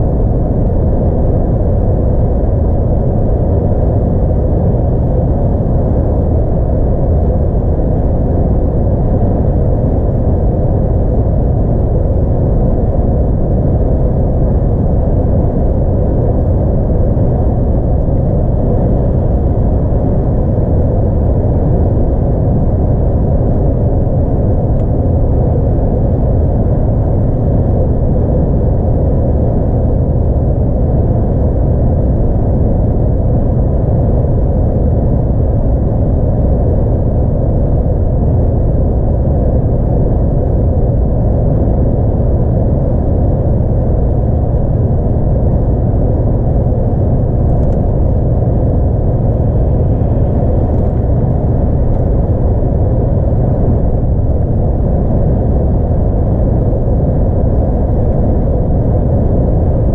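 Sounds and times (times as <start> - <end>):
diesel truck engine rumble: 45.7 - 54.2.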